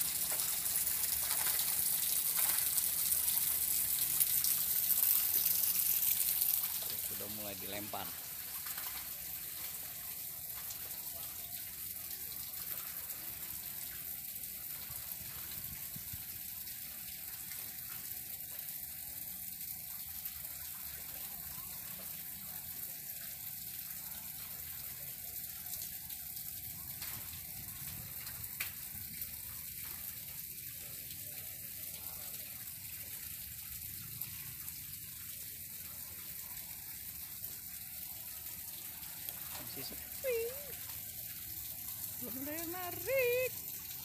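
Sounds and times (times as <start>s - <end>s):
flowing water rushing: 0.0s - 16.2s, 37.3s - 44.0s.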